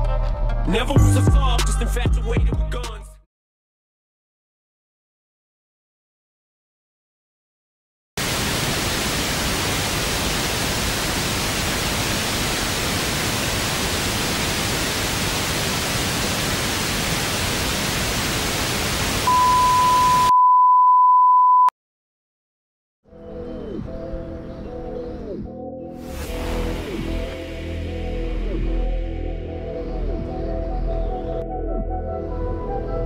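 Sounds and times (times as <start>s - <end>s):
television static hiss: 8.2s - 20.3s
steady test tone: 19.3s - 20.4s.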